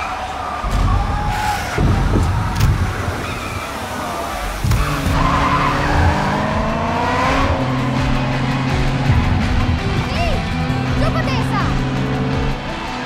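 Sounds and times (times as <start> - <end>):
car engine revving: 0.0 - 13.0
tyres squealing: 0.0 - 13.0.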